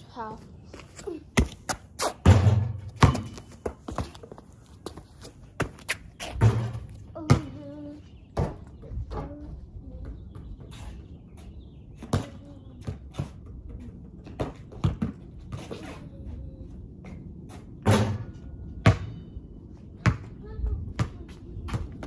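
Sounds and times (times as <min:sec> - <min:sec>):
basketball bouncing on concrete: 0:01.4 - 0:07.8, 0:12.0 - 0:16.0, 0:17.8 - 0:19.3, 0:20.0 - 0:22.0.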